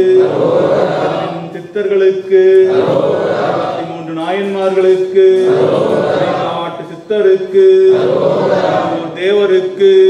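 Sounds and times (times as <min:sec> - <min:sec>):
men chanting together: 0:00.0 - 0:01.6, 0:02.4 - 0:06.8, 0:07.6 - 0:09.2.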